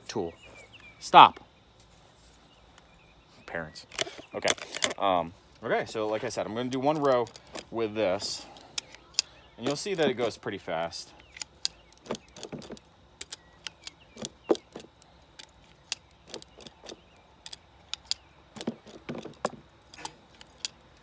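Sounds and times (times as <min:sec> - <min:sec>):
inoculator tool clicking: 0:11.2 - 0:21.0.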